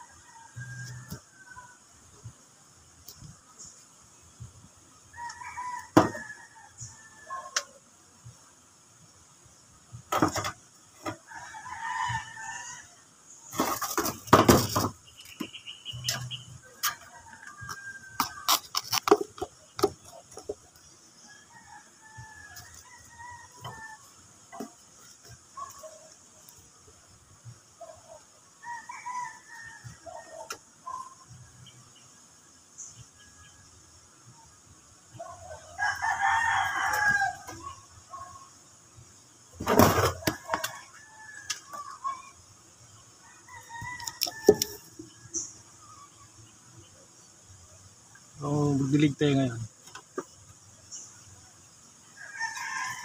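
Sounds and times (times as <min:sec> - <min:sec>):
rooster crowing: 0:05.1 - 0:07.7, 0:11.2 - 0:13.0, 0:21.2 - 0:24.1, 0:28.6 - 0:30.5, 0:35.3 - 0:37.8, 0:43.2 - 0:45.4, 0:52.2 - 0:53.0
knocks and rustles: 0:10.1 - 0:11.2, 0:13.5 - 0:20.7.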